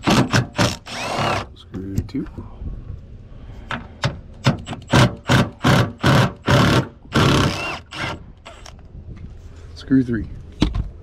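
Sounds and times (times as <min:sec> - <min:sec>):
power drill-driver bursts: 0:00.0 - 0:01.5, 0:04.7 - 0:08.7.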